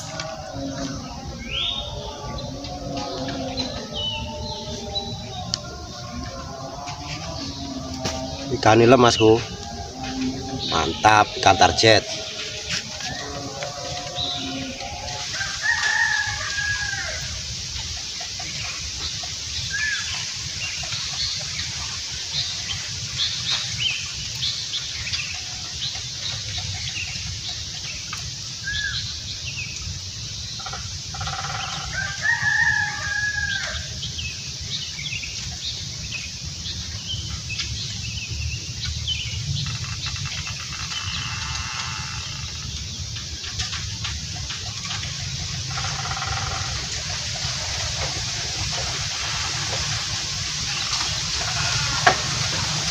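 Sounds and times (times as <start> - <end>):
small birds chirping: 0.0 - 15.5
rooster crowing: 0.0 - 17.6, 31.2 - 34.1
steady hiss: 0.0 - 52.9.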